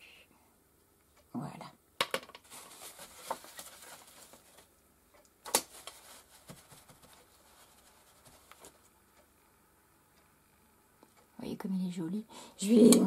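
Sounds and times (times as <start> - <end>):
wrapper rustling and crinkling: 2.4 - 4.7, 5.5 - 8.8.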